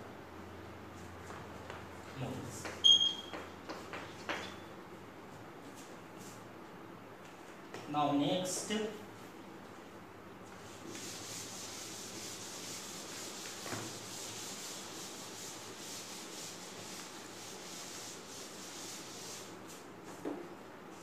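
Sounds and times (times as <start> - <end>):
eraser rubbing on chalkboard: 10.6 - 19.8.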